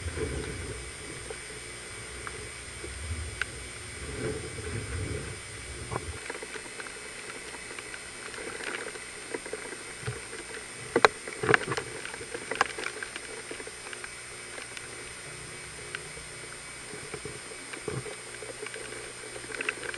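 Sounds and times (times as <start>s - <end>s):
hurricane wind: 0.0s - 6.2s
rain: 0.0s - 19.9s.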